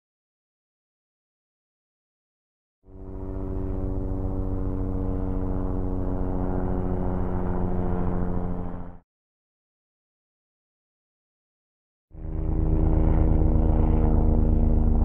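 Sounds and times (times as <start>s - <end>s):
helicopter rotor beating: 2.9s - 9.0s, 12.1s - 15.0s.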